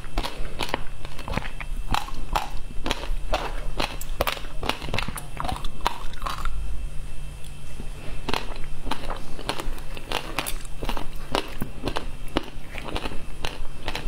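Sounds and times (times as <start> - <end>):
crunching frozen ice: 8.2 - 14.0.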